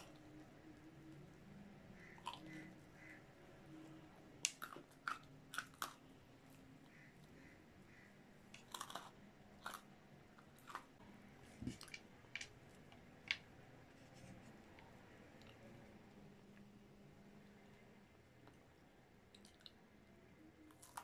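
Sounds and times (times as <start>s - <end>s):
close chewing food: 4.5s - 6.6s, 8.6s - 11.0s, 20.7s - 21.0s.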